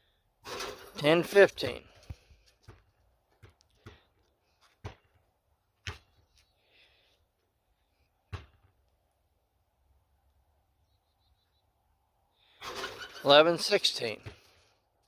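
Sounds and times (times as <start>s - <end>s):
basketball bouncing on asphalt: 1.9s - 6.4s, 8.2s - 8.9s, 14.2s - 14.6s.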